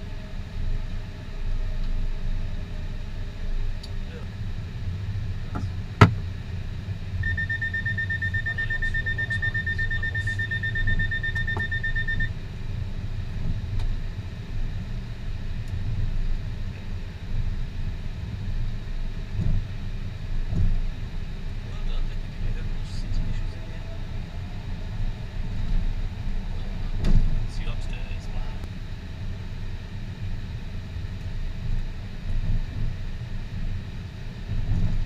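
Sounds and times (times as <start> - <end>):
aircraft low rumble: 0.0 - 35.0
pulsing electronic alert tone: 7.2 - 12.3.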